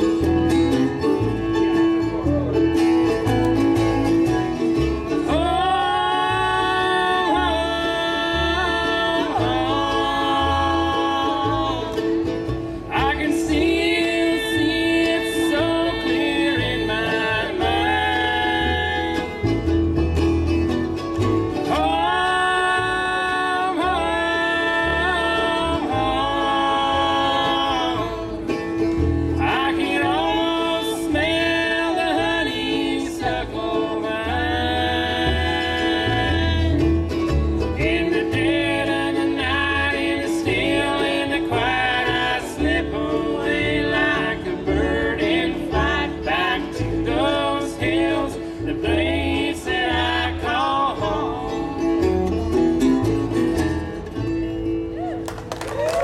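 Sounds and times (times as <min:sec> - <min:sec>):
acoustic guitar: 0:00.0 - 0:56.0
fiddle: 0:00.0 - 0:56.0
upright bass: 0:00.0 - 0:56.0
voices singing close harmony: 0:05.2 - 0:12.2, 0:12.9 - 0:19.7, 0:21.7 - 0:28.5, 0:29.4 - 0:36.8, 0:37.8 - 0:52.1.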